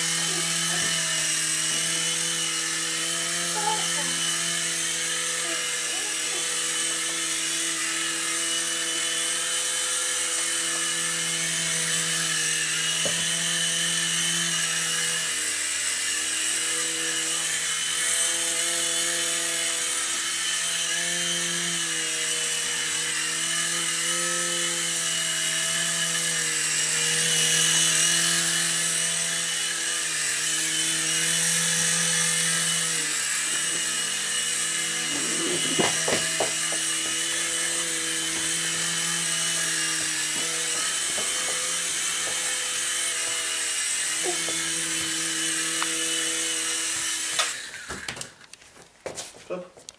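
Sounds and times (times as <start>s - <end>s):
rc helicopter rotors whirring: 0.0s - 48.6s.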